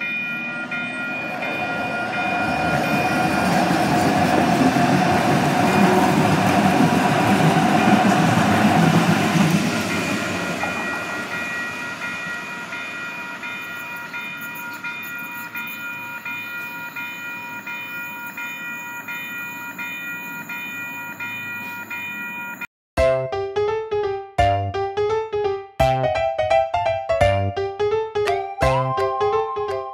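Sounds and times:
train passing rumble: 0.0s - 22.6s
level-crossing warning bell: 0.0s - 22.7s.

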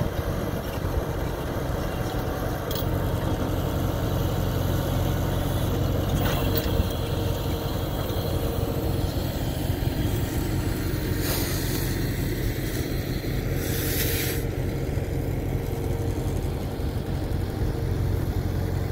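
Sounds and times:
tractor engine idling: 0.0s - 18.9s
short hiss: 11.1s - 12.0s, 13.6s - 14.5s.

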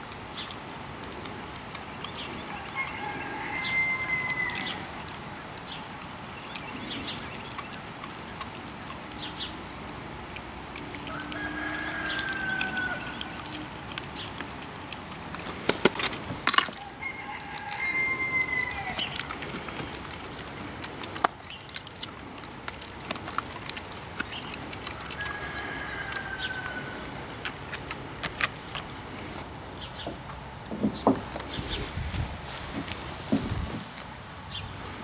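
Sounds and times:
drawn-out animal calls: 0.0s - 33.8s
birds chirping: 0.0s - 35.0s
bone knocking on wooden deck: 30.0s - 31.5s.

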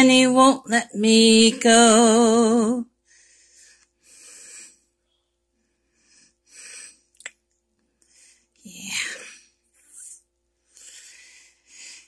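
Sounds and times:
woman singing with vibrato: 0.0s - 2.9s
soft breaths: 2.9s - 7.2s, 7.8s - 12.0s.

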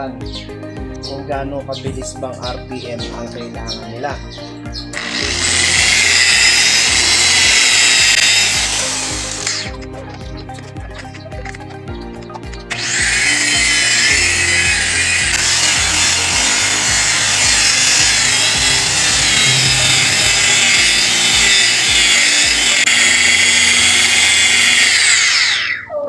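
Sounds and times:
electric car polisher whirring: 5.0s - 9.8s, 12.7s - 25.8s.

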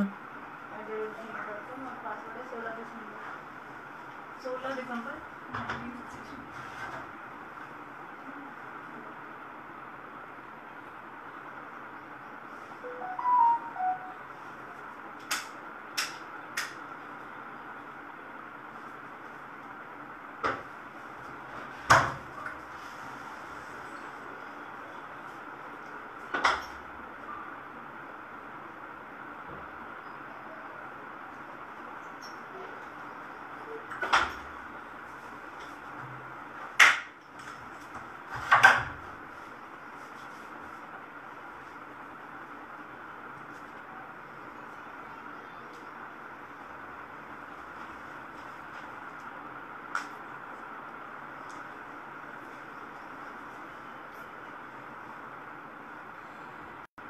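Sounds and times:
electronic chime: 12.8s - 14.2s.

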